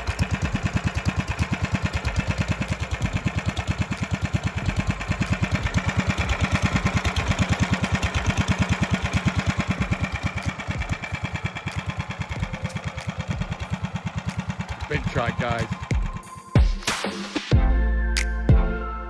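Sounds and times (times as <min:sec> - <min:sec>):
small engine idling: 0:00.0 - 0:17.0.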